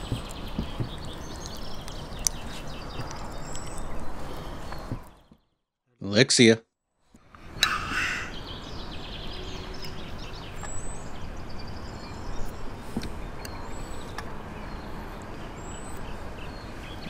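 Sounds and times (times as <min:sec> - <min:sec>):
outdoor hiss and rumble: 0:00.0 - 0:05.3, 0:06.1 - 0:17.0
faint bird chirps: 0:07.5 - 0:17.0.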